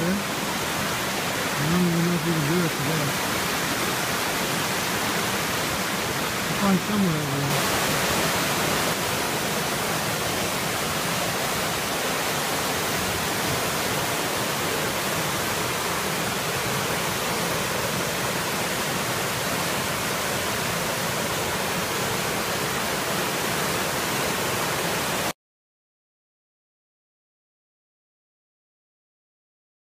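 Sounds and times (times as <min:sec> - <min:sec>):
river water rushing: 0:00.0 - 0:25.3.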